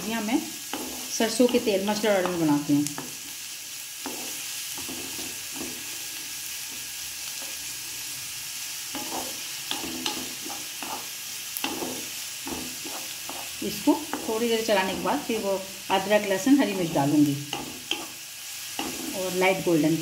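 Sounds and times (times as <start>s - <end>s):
onion sizzling in oil: 0.0s - 20.0s
wooden spatula scraping a pan: 0.7s - 3.2s, 4.0s - 6.1s, 9.0s - 16.2s, 17.5s - 18.2s, 18.8s - 19.3s.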